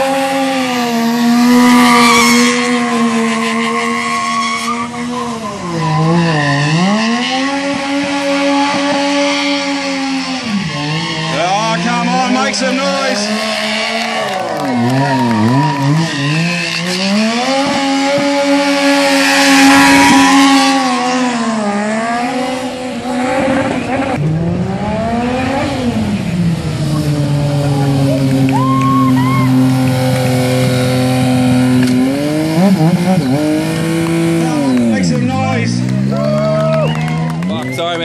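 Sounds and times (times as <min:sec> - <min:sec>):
motorcycle engine revving: 0:00.0 - 0:38.0.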